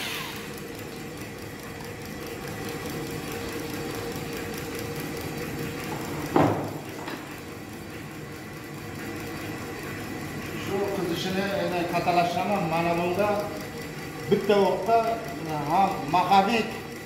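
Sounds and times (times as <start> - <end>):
low mechanical hum: 0.0 - 17.0
drill knocking on tabletop: 5.9 - 7.3.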